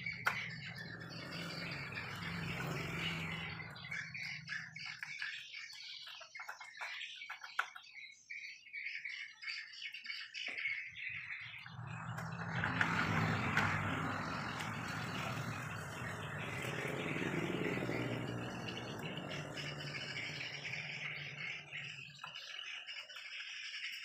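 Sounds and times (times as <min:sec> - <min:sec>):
motor humming: 0:11.8 - 0:22.2.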